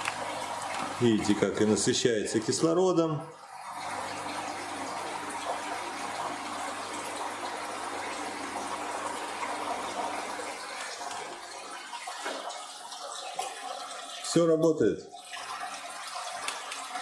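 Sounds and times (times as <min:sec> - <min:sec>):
water bubbling and splashing: 0:00.0 - 0:02.6.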